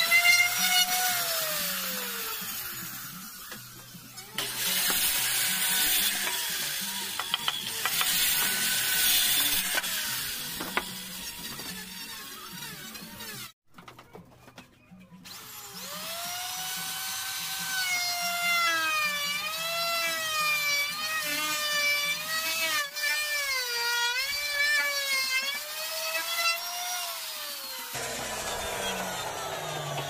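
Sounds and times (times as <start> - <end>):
electric router whining: 28.0 - 30.0.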